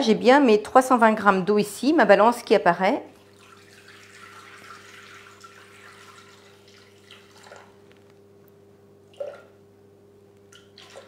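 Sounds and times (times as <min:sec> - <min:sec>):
steady low hum: 0:02.9 - 0:11.0
water pouring into bowl: 0:03.2 - 0:08.0, 0:10.5 - 0:11.0.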